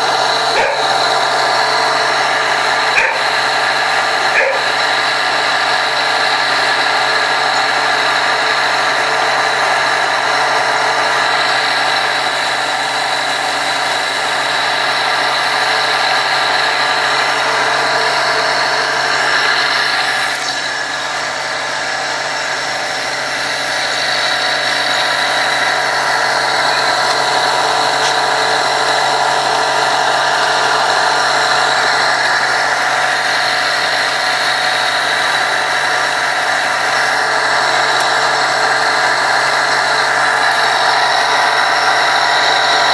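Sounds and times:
machine droning: 0.0s - 42.9s.

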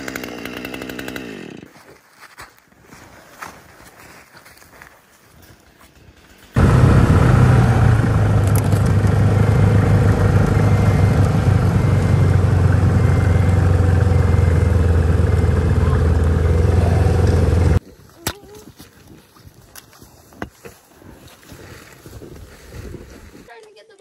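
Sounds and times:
snowmobile engine running: 6.6s - 17.8s.

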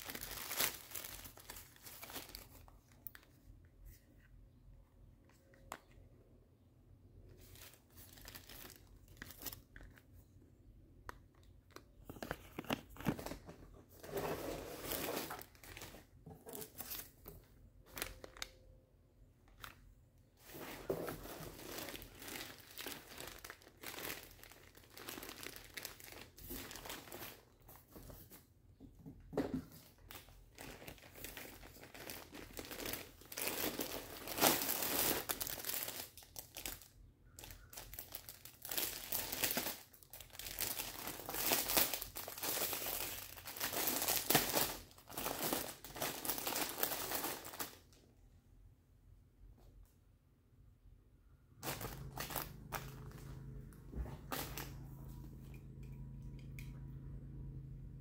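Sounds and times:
packaging crinkling and rustling: 0.0s - 4.0s, 7.2s - 10.4s, 11.3s - 18.8s, 19.5s - 28.5s, 29.8s - 47.9s, 51.6s - 54.8s.

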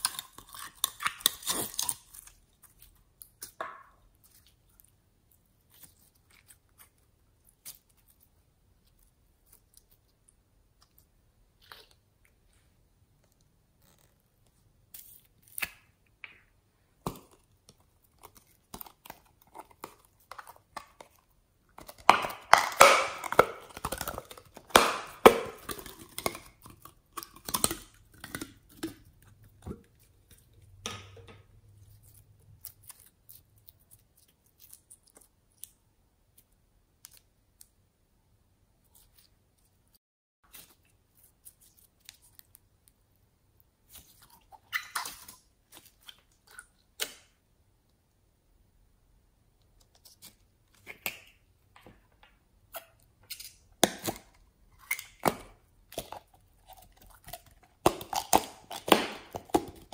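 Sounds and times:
slime popping and crackling: 0.0s - 4.6s, 17.0s - 30.5s, 53.5s - 59.9s.

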